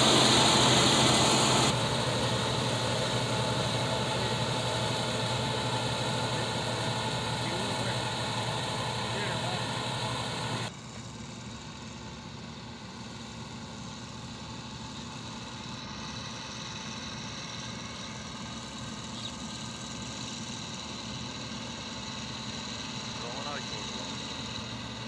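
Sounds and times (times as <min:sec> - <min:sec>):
loud sound cutting off: 0:00.0 - 0:10.7
combine harvester engine drone: 0:00.0 - 0:25.0.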